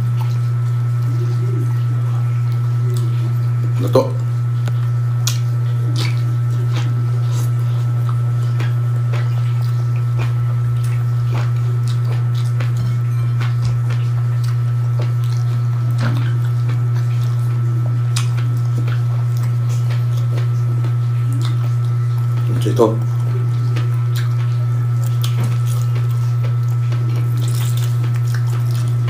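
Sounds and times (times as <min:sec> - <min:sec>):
loud steady low hum: 0:00.0 - 0:29.0
person chewing food: 0:00.0 - 0:29.0
wet mouth clicks: 0:02.5 - 0:12.8, 0:13.4 - 0:29.0.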